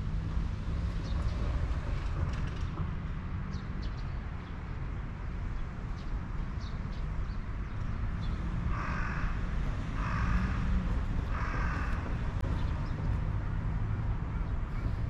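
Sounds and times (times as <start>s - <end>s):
low vehicle rumble: 7.9s - 15.0s
crow cawing: 8.7s - 12.4s.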